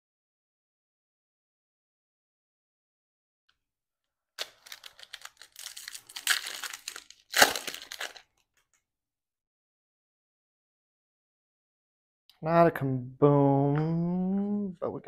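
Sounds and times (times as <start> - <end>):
foil wrapper crinkling: 4.4 - 8.4
foil wrapper tearing: 4.4 - 8.4.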